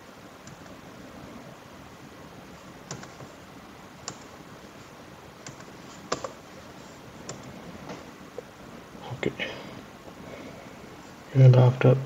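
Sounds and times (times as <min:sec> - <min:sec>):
faint steady hiss: 0:00.0 - 0:12.0
keyboard and mouse clicks: 0:00.4 - 0:00.8, 0:02.8 - 0:03.3, 0:04.0 - 0:04.4, 0:05.4 - 0:06.4.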